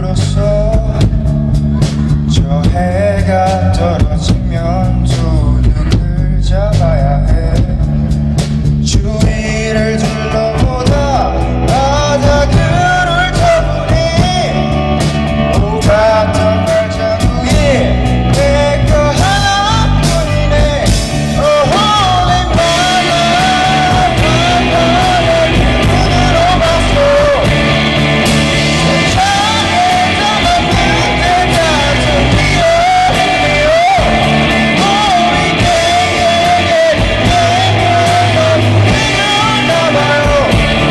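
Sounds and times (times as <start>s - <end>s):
person singing: 0.0s - 8.0s, 8.8s - 40.9s
bass guitar: 0.0s - 40.9s
drum kit: 0.0s - 40.9s
electric guitars: 0.0s - 40.9s.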